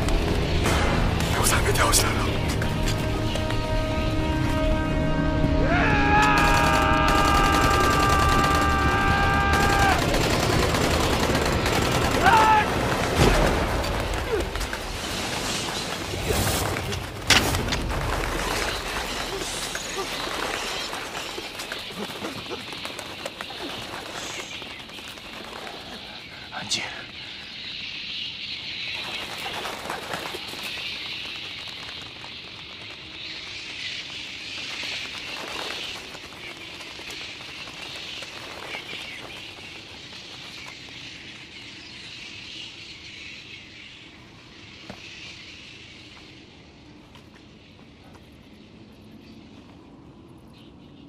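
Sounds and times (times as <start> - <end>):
film score music: 0.0 - 27.2
insects chirring: 0.0 - 51.0
man yelling: 5.7 - 10.1
automatic gunfire: 6.4 - 13.5.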